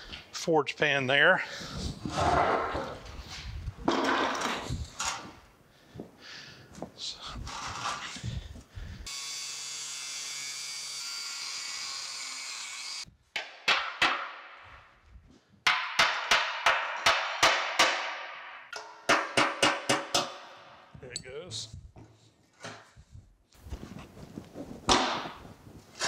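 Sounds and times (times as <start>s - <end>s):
hammer striking metal: 15.7s - 20.6s.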